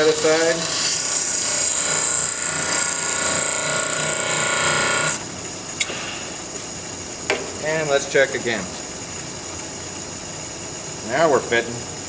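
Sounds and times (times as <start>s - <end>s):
bench grinder grinding steel: 0.0s - 5.2s
bench grinder running: 0.0s - 5.8s.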